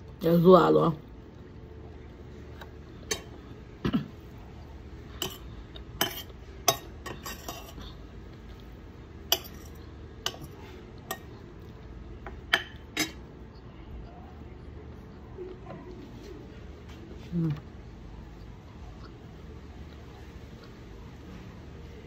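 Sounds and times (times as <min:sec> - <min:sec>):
low background hum: 0:00.0 - 0:22.0
cutlery clinking on plate: 0:06.0 - 0:07.8, 0:09.3 - 0:11.4, 0:12.4 - 0:13.3.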